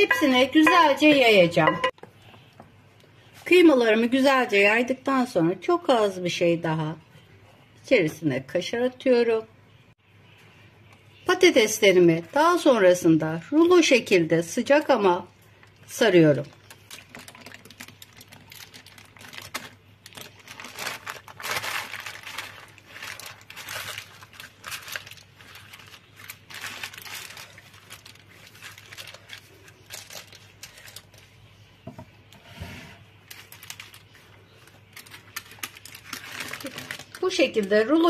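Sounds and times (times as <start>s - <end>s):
baking paper crinkling: 16.0s - 31.7s, 33.0s - 38.0s.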